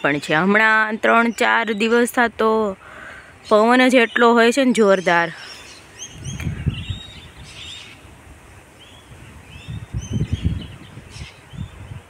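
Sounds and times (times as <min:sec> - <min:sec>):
birds chirping: 0:00.0 - 0:12.0
wind buffeting microphone: 0:05.9 - 0:12.0.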